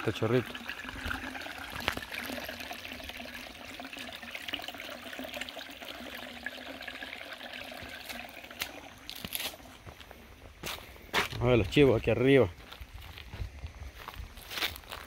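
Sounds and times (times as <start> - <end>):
spring water trickling: 0.0 - 10.0.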